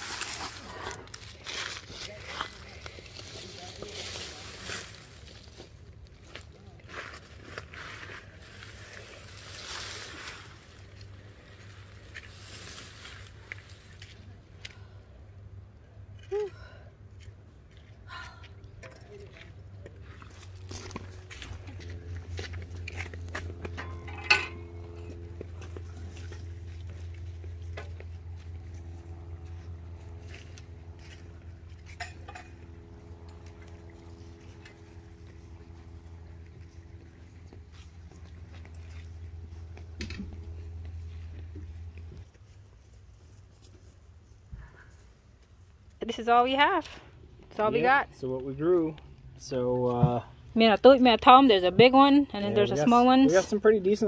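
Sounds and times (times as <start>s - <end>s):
dry vines rustling and crackling: 0.0s - 14.4s, 20.0s - 31.7s
steady low hum: 0.0s - 54.0s.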